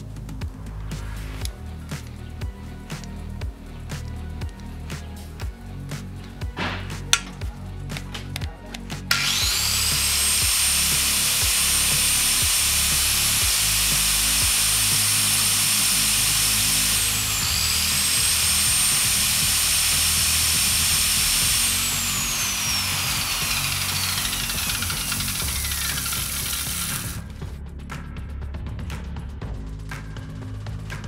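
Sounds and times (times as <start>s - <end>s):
background music: 0.0s - 31.0s
disc sander whine: 9.1s - 27.2s
metal grinding on abrasive disc: 9.1s - 27.2s.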